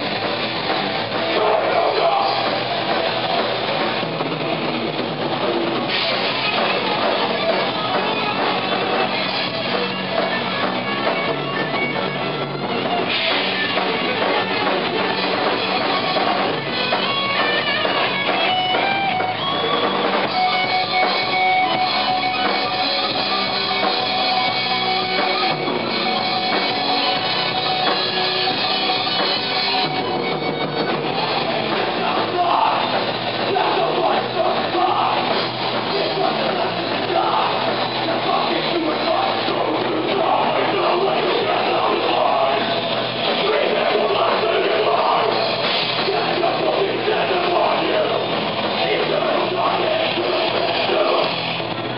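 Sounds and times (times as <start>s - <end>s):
distorted electric guitars: 0.0s - 51.9s
pounding drum kit: 0.0s - 51.9s.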